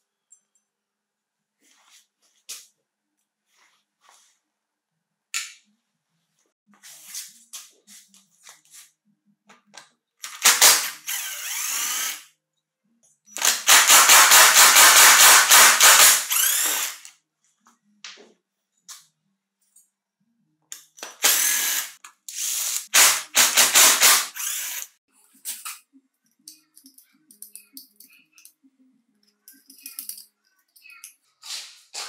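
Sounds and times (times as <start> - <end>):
clicks and taps of parts handled: 29.4 - 31.2.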